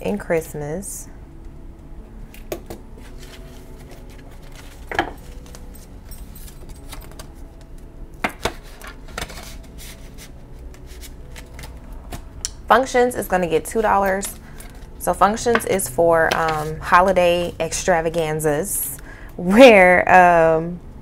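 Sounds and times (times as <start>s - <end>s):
banknotes rustling and flicking: 2.8s - 18.5s.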